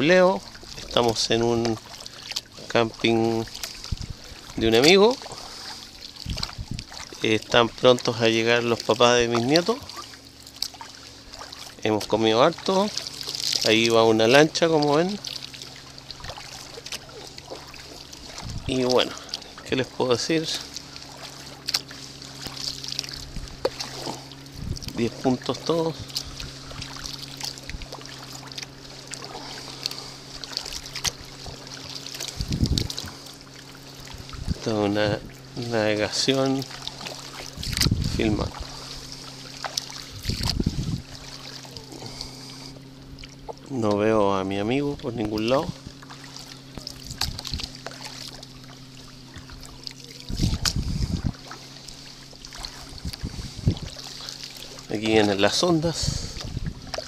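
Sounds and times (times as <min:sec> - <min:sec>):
water drips: 0:00.0 - 0:34.6
paddle splashing in water: 0:00.0 - 0:57.0
steady low hum: 0:00.0 - 0:57.0
low knock and rumble: 0:22.4 - 0:33.3, 0:36.6 - 0:41.5, 0:49.3 - 0:51.6.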